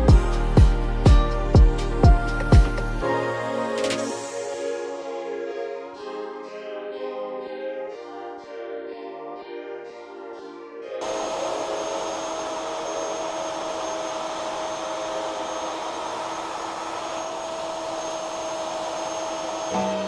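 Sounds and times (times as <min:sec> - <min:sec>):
dust extractor rushing air: 0:11.0 - 0:20.0
router high whine: 0:11.0 - 0:20.0.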